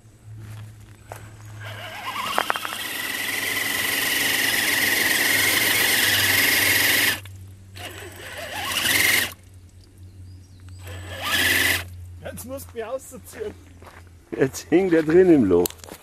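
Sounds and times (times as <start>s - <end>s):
electric motor whining: 1.4s - 9.4s, 10.8s - 11.9s.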